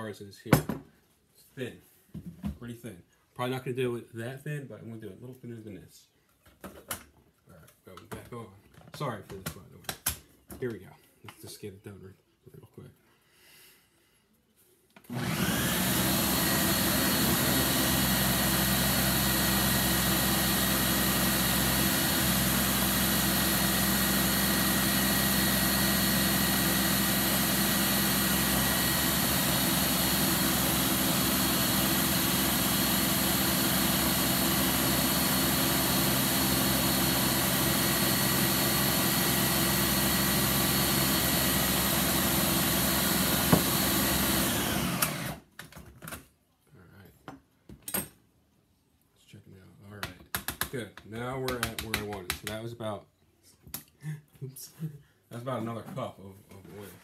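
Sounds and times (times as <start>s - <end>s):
blender motor running: 15.1s - 45.5s.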